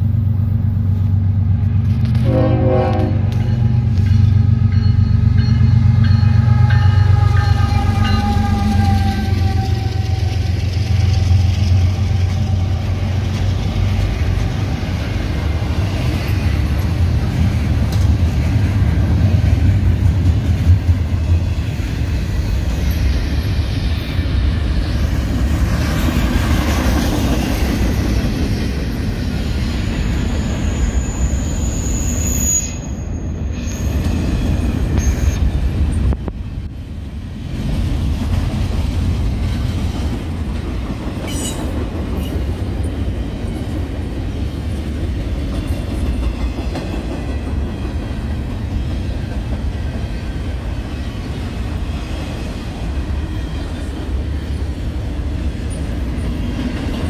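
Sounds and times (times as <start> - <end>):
train wheels rumbling on rails: 0.0 - 57.0
high-pitched wheel squeal: 6.7 - 11.6, 29.8 - 35.5.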